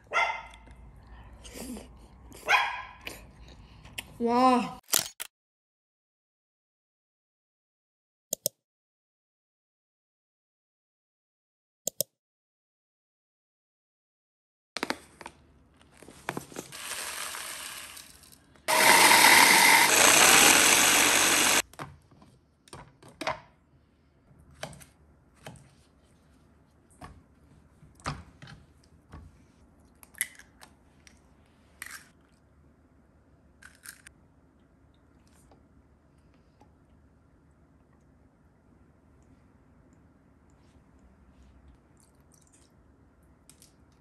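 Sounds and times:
electric food chopper grinding: 0:16.7 - 0:21.6.

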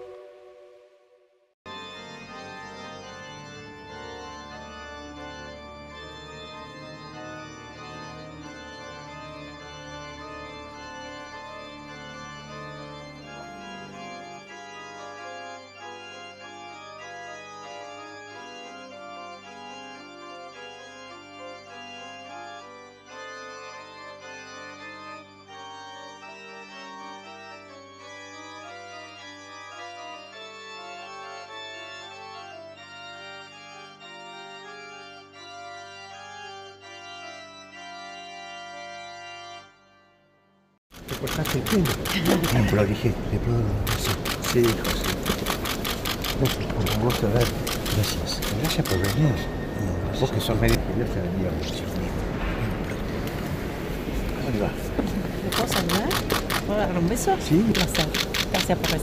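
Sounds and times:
organ playing sustained chords: 0:00.0 - 0:01.1, 0:01.7 - 0:59.0.

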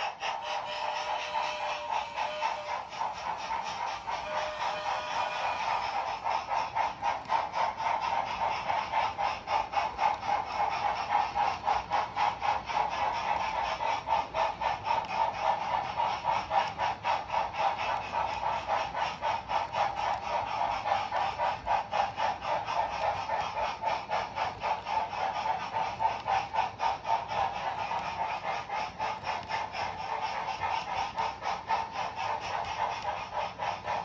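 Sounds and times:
model train wheels clicking on rails: 0:00.0 - 0:34.0.

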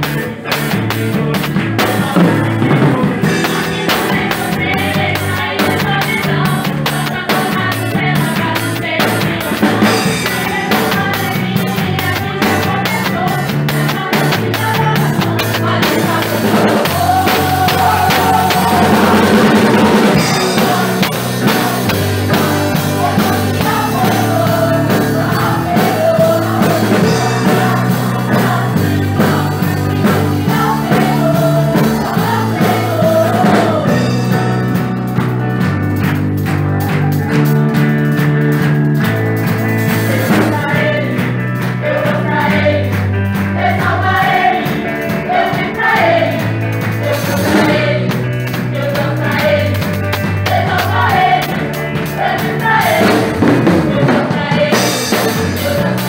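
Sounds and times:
people singing: 0:00.0 - 0:34.9, 0:39.4 - 0:56.0
bass guitar: 0:00.0 - 0:56.0
drums: 0:00.0 - 0:56.0
electric guitar: 0:00.0 - 0:56.0.

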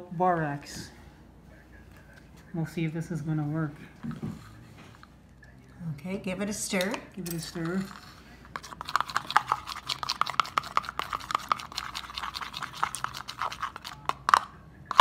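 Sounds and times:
spoon scraping plastic bowl: 0:07.3 - 0:15.0.

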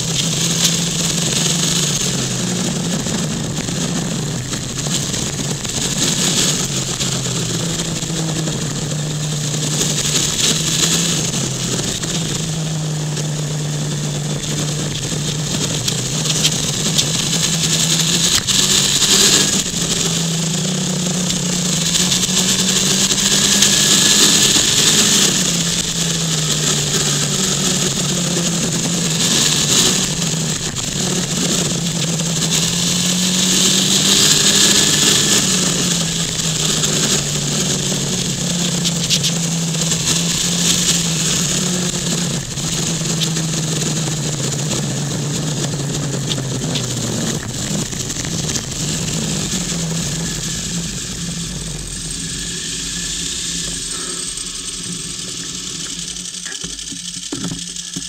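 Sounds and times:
vehicle engine running: 0:00.0 - 0:58.0
wind and road noise: 0:00.0 - 0:58.0.

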